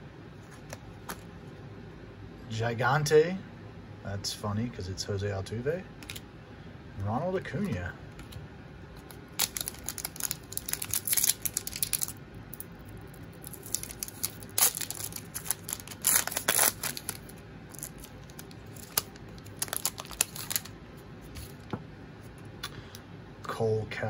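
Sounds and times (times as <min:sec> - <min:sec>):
foil wrapper tearing and crinkling: 0:09.0 - 0:20.7.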